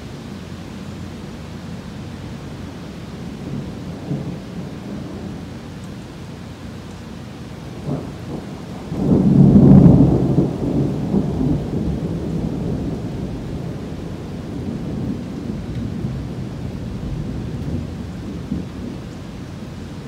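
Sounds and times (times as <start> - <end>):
rain: 0.0 - 20.0
thunder rumbling: 3.2 - 5.8, 7.2 - 20.0.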